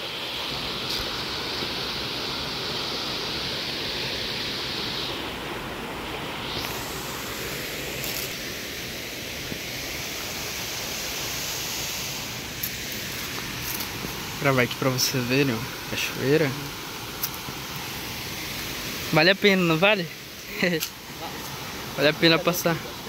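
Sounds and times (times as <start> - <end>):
waterfall rushing: 0.0 - 23.0
rocky stream flowing: 12.0 - 23.0.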